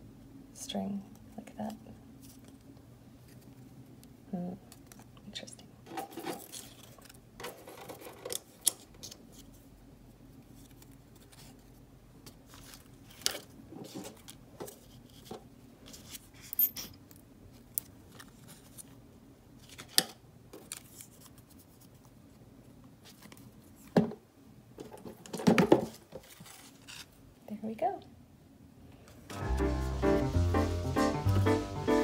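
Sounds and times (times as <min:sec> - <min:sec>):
paper rustling: 0:10.4 - 0:16.4, 0:17.5 - 0:19.0, 0:20.6 - 0:22.1, 0:25.8 - 0:27.2.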